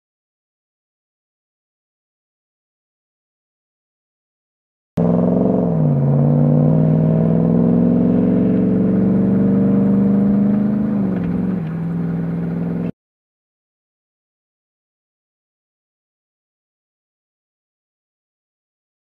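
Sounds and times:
car engine accelerating hard: 5.0 - 12.9.

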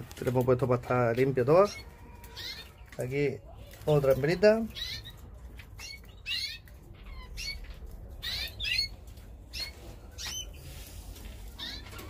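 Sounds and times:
finches chirping: 4.7 - 5.2, 5.8 - 10.6.

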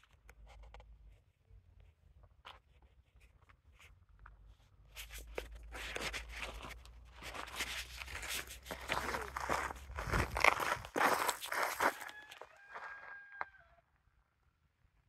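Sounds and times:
footsteps crunching on gravelly dirt: 5.2 - 13.6.

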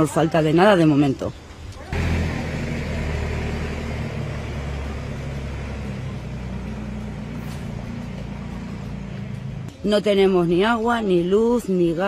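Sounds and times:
tractor engine running: 1.9 - 9.8.

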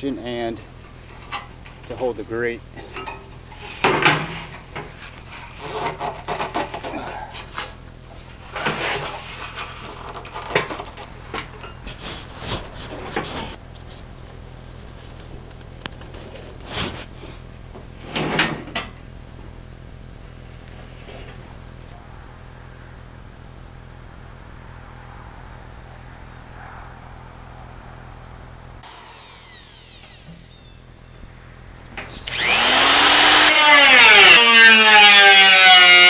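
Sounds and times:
sheet metal scrapes and clunks: 2.8 - 7.8.

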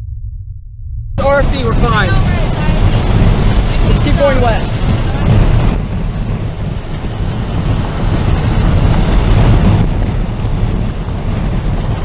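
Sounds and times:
strong wind buffeting microphone: 1.1 - 12.0.

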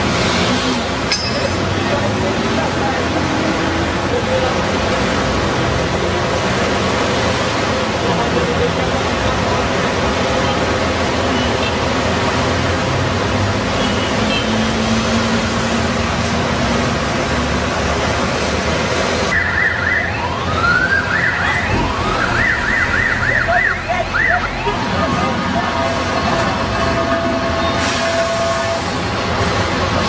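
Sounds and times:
street traffic noise: 0.0 - 30.0
emergency siren wailing: 19.3 - 27.4.

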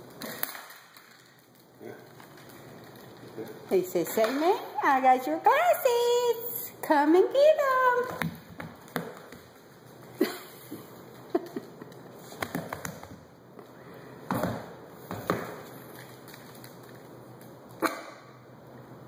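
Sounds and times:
dog claws tapping on wooden floor: 8.0 - 10.2, 11.0 - 13.3.

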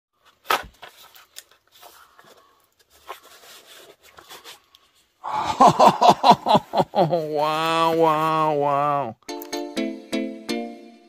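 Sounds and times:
objects being handled: 0.2 - 5.2.

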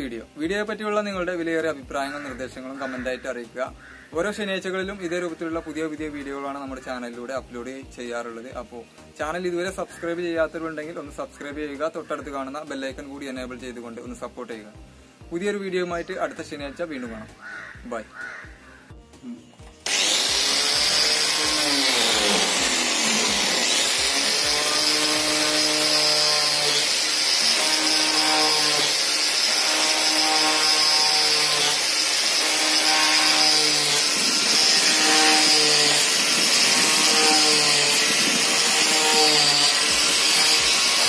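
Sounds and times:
angle grinder drilling plywood: 19.2 - 41.0.

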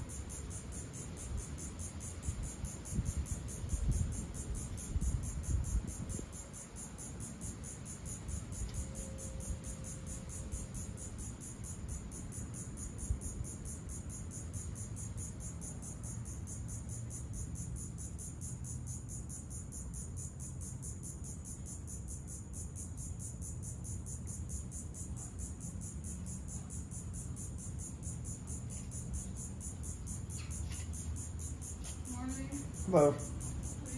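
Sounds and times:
insects calling in a pulsing chorus: 0.0 - 33.9.

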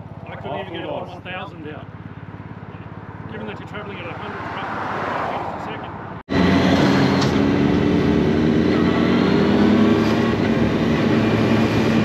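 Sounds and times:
vehicle engine hum: 0.0 - 12.0.

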